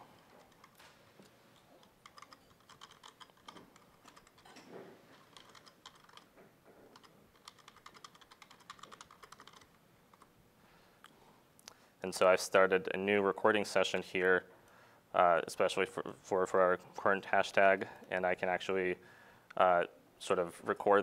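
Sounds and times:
faint laptop keyboard typing: 0.0s - 10.3s.

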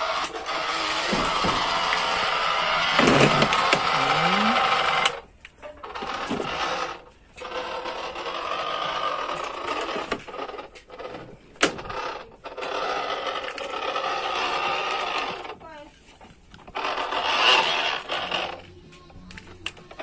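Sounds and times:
toy buzzing electronic tone: 2.2s - 5.2s, 16.7s - 18.7s.

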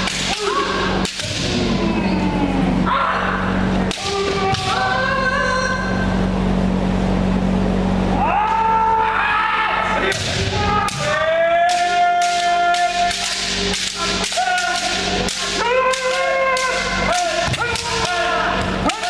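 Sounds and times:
bamboo swords clacking: 0.0s - 1.6s, 3.9s - 4.8s, 10.0s - 19.0s
people shouting: 0.0s - 6.2s, 8.1s - 19.0s.

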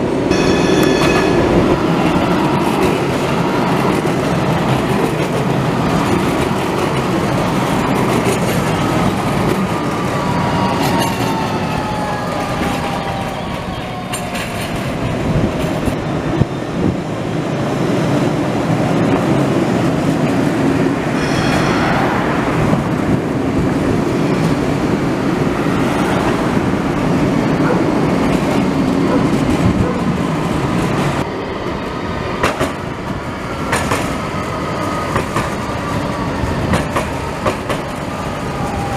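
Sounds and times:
tram wheels rumbling on rail: 0.0s - 38.9s
tram whine: 0.0s - 38.9s
high wheel squeal: 21.2s - 23.4s.

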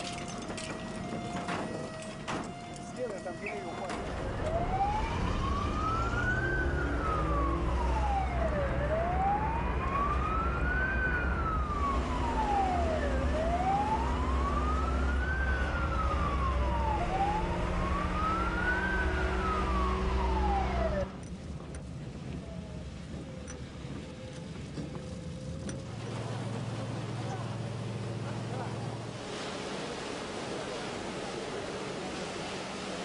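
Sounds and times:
fire engine siren wailing: 0.0s - 21.2s
truck engine rumbling: 0.0s - 29.3s.

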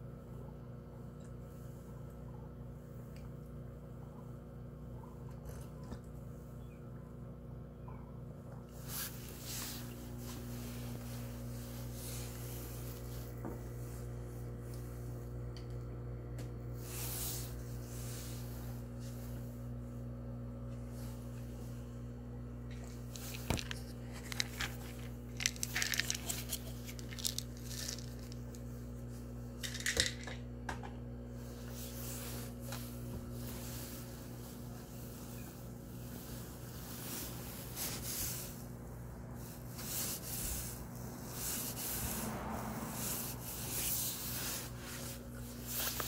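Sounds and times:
low machine hum: 0.0s - 46.0s
crackly rustles: 8.7s - 15.9s, 22.7s - 29.8s, 31.4s - 46.0s.

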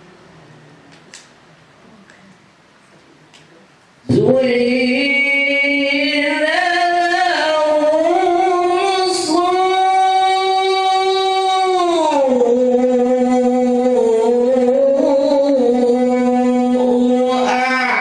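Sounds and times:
person chanting melodically: 4.0s - 18.0s.

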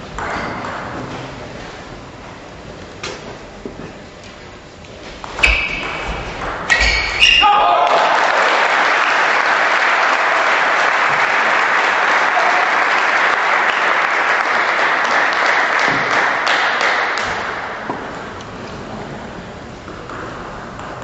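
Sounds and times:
spectators applauding: 7.4s - 17.6s.

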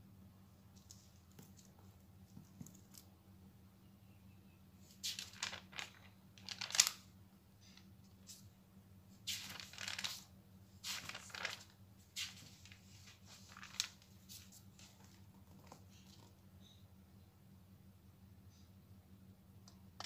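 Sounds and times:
paper pages being turned: 4.9s - 7.1s, 9.2s - 16.3s.

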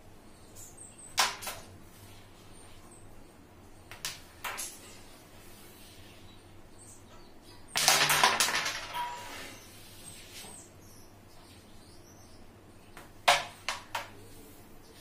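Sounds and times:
striker cracking into carrom pieces: 7.7s - 9.0s, 13.0s - 14.2s
rattle of pieces clicking: 7.8s - 9.2s.

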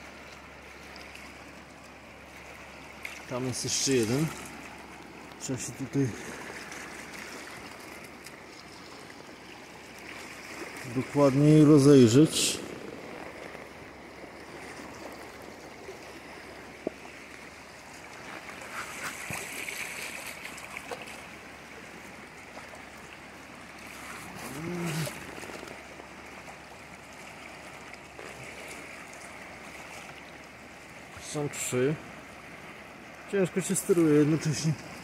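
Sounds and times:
shallow water washing: 0.0s - 35.0s
water sloshing and splashing: 0.0s - 35.0s.

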